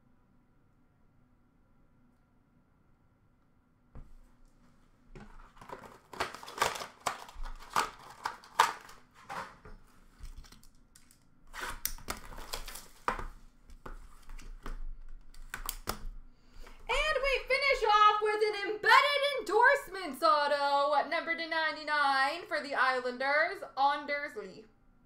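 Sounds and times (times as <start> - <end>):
plastic wrapper crinkling and tearing: 5.2 - 13.3.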